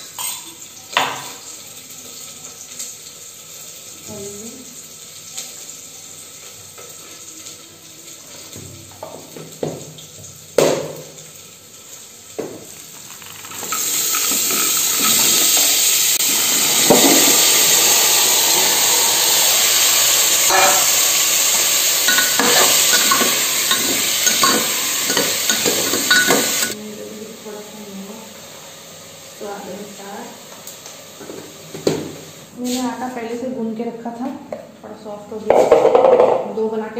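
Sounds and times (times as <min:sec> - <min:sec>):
food sizzling in hot oil: 0:00.0 - 0:33.5
spoon stirring against pot: 0:13.6 - 0:15.9, 0:20.5 - 0:26.8
knocks and clinks: 0:22.1 - 0:26.8.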